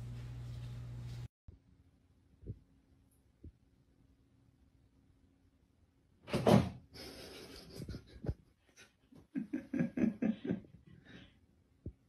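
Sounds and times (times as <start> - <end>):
person laughing: 7.0 - 11.3.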